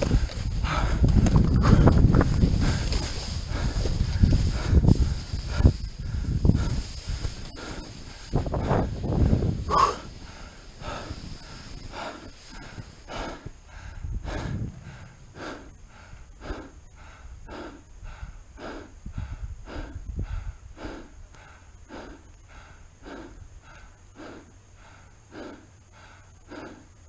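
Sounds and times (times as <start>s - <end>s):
microphone rumbles: 0.0s - 16.5s
person breathing hard: 0.0s - 27.0s.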